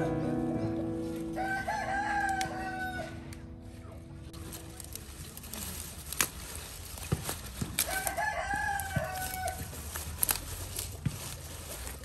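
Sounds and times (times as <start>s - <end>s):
leaf rustling: 1.0s - 12.0s
rooster crowing: 1.2s - 3.4s, 7.8s - 9.8s
radishes snapping out of soil: 4.3s - 12.0s.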